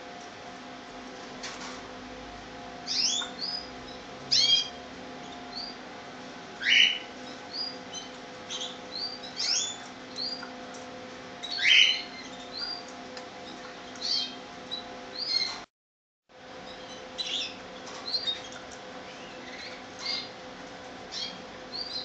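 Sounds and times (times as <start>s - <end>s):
canaries chirping: 2.8s - 5.9s, 6.6s - 15.6s, 16.6s - 20.4s, 21.0s - 22.0s.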